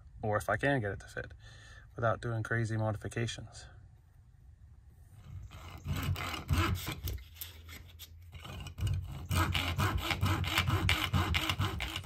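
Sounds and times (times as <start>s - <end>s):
hacksaw cutting: 5.5s - 12.0s.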